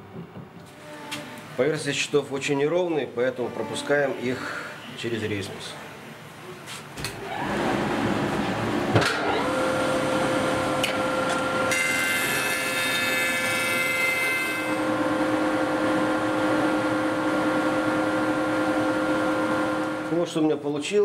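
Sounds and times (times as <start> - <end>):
thickness planer running: 7.2 - 20.2
planer cutting wood panel: 7.3 - 20.2.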